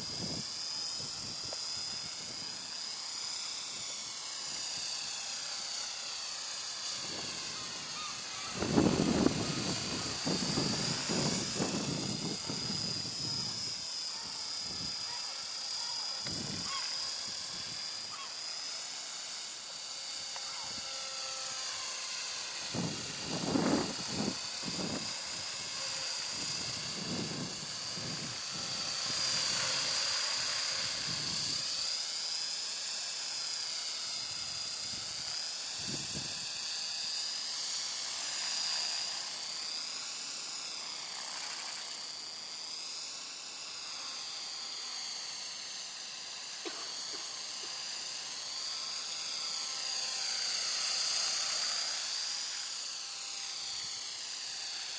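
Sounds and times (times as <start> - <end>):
rotor whirring: 0.0 - 44.2
rc helicopter motor whine: 0.0 - 54.9.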